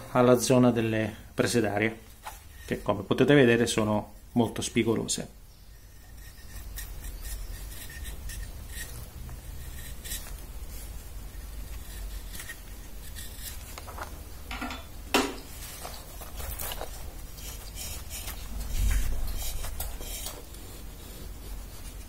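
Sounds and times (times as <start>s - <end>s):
carving blade scraping wood: 5.7s - 13.9s, 16.1s - 22.0s.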